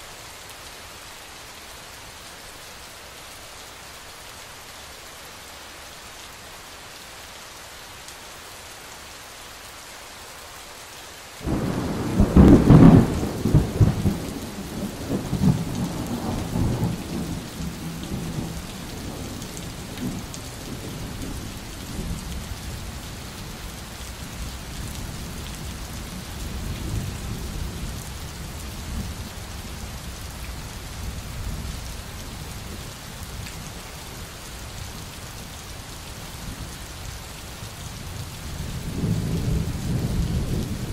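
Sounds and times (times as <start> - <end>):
steady rain: 0.0 - 40.9
thunder rumbling: 11.4 - 21.2.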